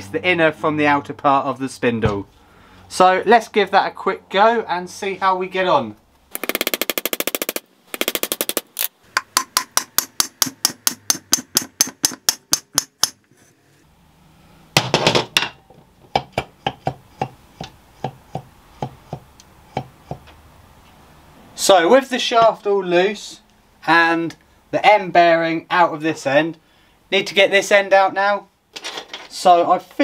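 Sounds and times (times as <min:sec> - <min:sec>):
hammer striking metal shaft: 0:09.2 - 0:13.2.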